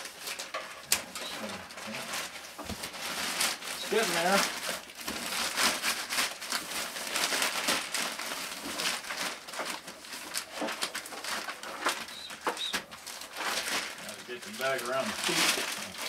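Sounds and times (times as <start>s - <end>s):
plastic bag rustling and crinkling: 0.0s - 16.0s.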